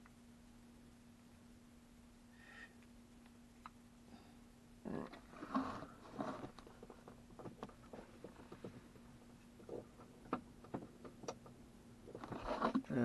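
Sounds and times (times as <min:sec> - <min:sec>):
faint steady hum: 0:00.0 - 0:13.0
wiring crinkling and rustling: 0:05.1 - 0:13.0.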